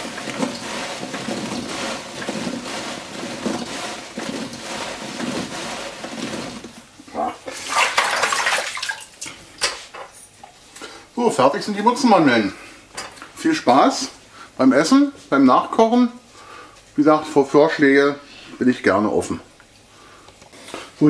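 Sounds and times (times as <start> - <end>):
dough balls rustling in sugar: 0.0 - 7.7.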